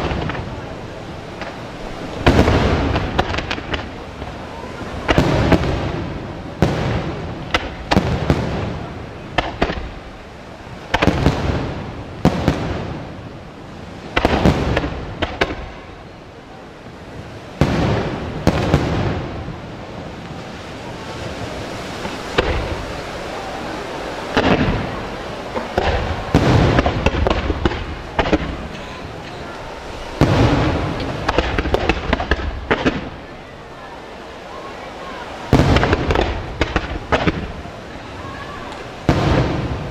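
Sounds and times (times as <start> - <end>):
firework booms: 0.0 - 10.1, 10.7 - 16.0, 17.6 - 23.2, 24.2 - 28.8, 29.5 - 33.3, 35.5 - 37.7, 38.5 - 39.9
firework cracks: 0.0 - 10.2, 10.8 - 16.0, 17.6 - 33.3, 35.5 - 39.9.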